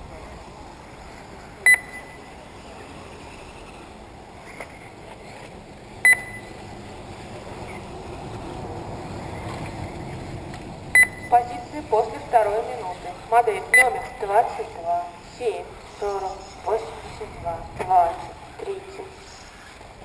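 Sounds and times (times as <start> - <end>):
steady background noise: 0.0 - 20.0
short loud electronic beeps: 1.7 - 2.3, 6.0 - 6.6, 11.0 - 11.6, 13.7 - 14.2.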